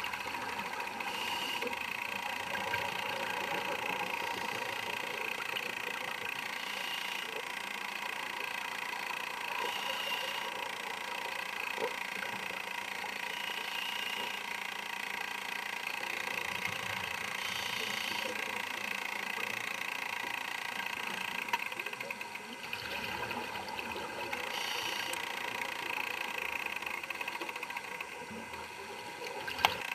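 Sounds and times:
underwater air bubbles: 21.7 - 29.9.

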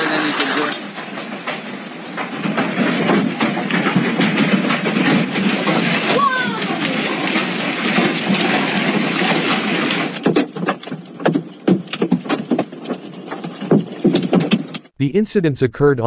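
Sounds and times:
hail and rain hissing: 0.0 - 10.2
hailstones clattering: 0.0 - 14.8.

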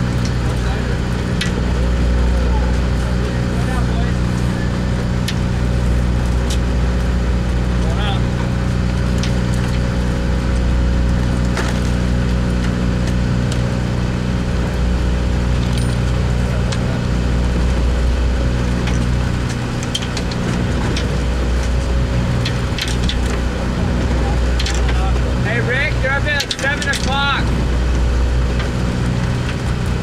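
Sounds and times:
boat engine droning: 0.0 - 30.0.

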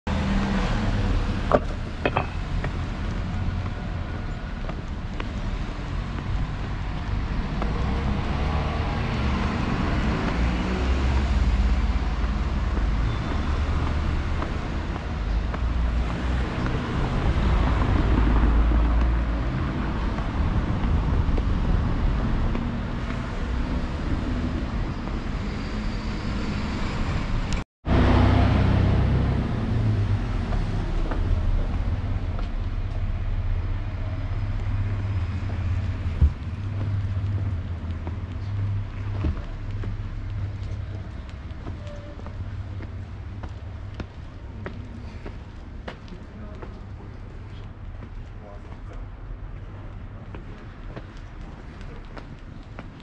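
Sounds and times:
cars passing: 0.1 - 53.0
heavy low rumble: 27.9 - 47.3.

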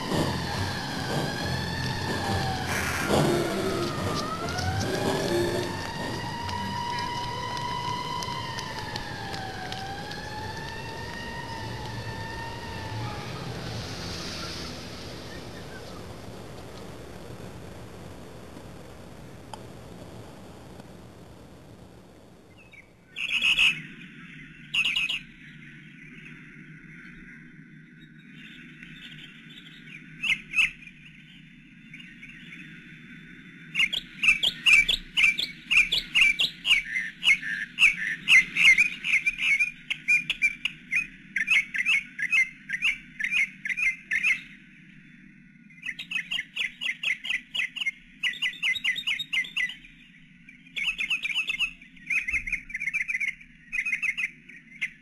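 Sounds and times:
low steady hum: 0.0 - 24.7.

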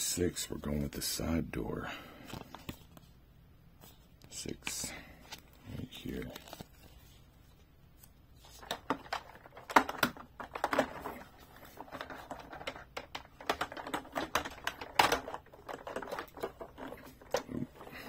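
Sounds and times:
plastic toy clicks and knocks: 8.6 - 18.0.

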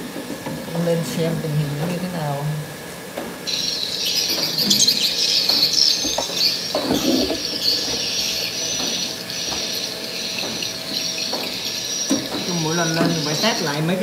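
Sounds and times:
recorded bird chirping from speakers: 3.5 - 14.0.

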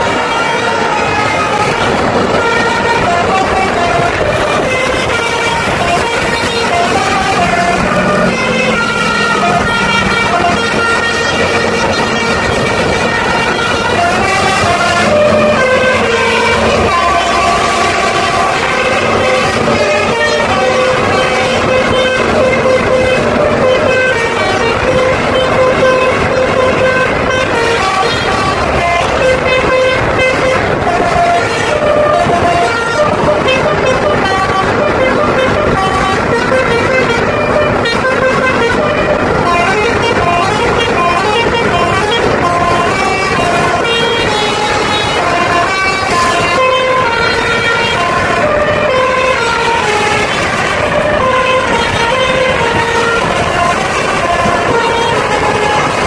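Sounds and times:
multi-tone air horn melody: 0.0 - 56.0
road and engine rumble: 0.0 - 56.0.

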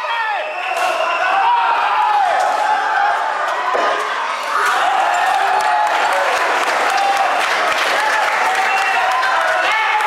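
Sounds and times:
audience clapping: 5.0 - 10.0.

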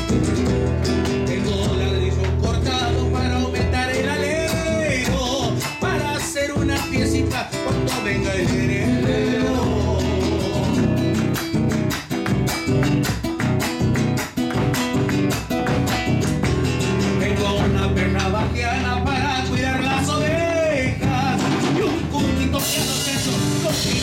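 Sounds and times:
classical guitar strummed: 0.0 - 24.0
man singing: 0.9 - 11.3, 16.9 - 24.0.

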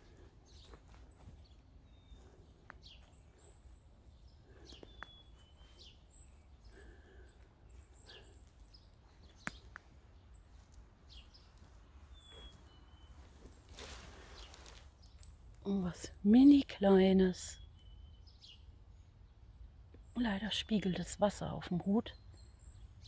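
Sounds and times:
soft footsteps on leaf litter: 0.0 - 3.5, 8.1 - 15.5
faint high bird calls: 0.0 - 21.0.

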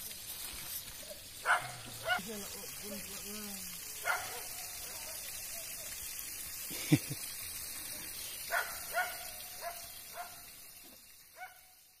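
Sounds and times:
dog barking: 1.4 - 2.3, 4.0 - 5.9, 8.5 - 10.5, 11.4 - 11.8.

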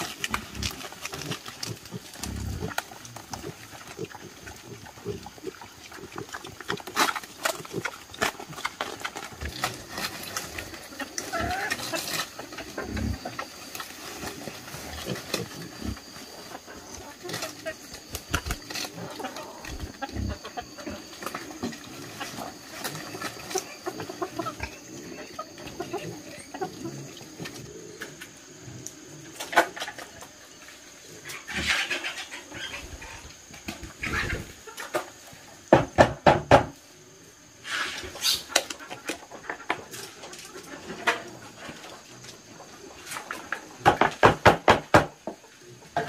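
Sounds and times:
pigs grunting: 0.0 - 29.4, 31.0 - 34.6
rustling: 6.0 - 24.4.

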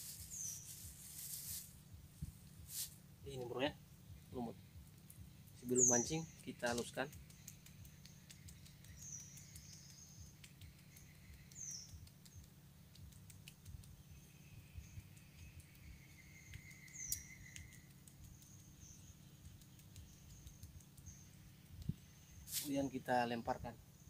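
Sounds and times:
birds chirping: 0.0 - 24.0
low steady rumble: 0.0 - 24.0
bird whistle: 15.8 - 17.8.

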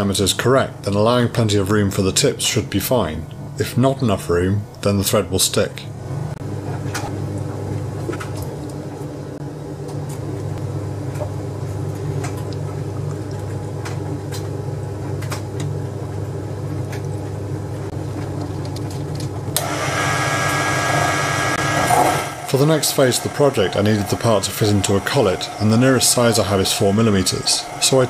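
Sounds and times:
lathe motor humming: 19.6 - 28.0.

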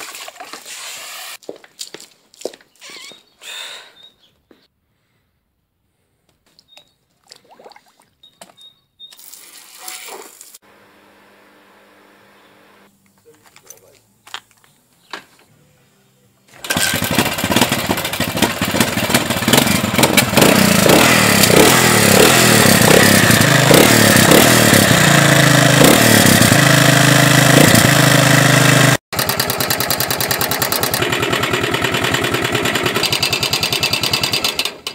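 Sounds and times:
motorcycle engine revving and idling: 16.5 - 34.9.

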